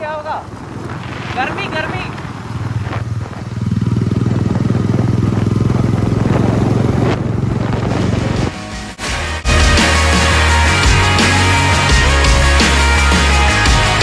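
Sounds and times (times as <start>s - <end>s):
motorcycle engine running: 0.0s - 8.9s, 9.5s - 14.0s
wind rushing: 0.0s - 11.3s.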